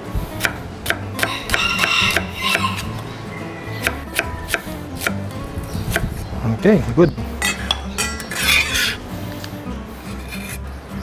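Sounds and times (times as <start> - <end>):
knife slicing onion: 0.2 - 3.1, 3.8 - 6.1, 7.4 - 10.6.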